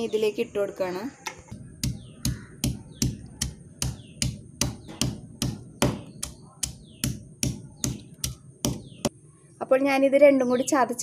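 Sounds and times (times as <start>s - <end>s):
pestle pounding in stone mortar: 1.3s - 9.1s.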